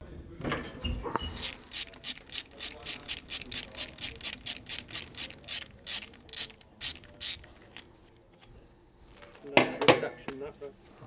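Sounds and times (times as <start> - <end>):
hand ratchet clicking: 1.4 - 7.8.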